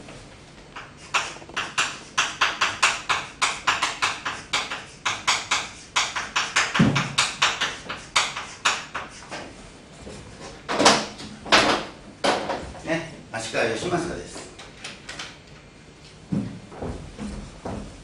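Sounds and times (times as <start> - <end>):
chalk tapping and scraping: 0.8 - 10.6.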